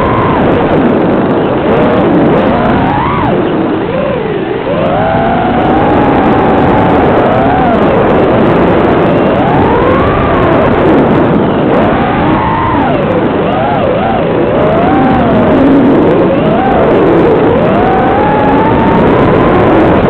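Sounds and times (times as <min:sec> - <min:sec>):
quadcopter motors whining: 0:00.0 - 0:20.0.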